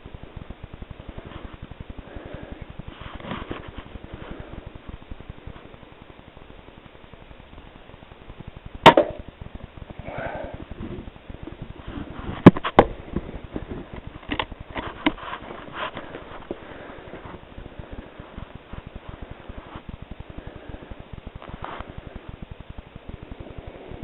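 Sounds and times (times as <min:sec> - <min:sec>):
rifle shot: 0:08.8 - 0:09.2
sharp clicks and knocks: 0:11.4 - 0:16.6.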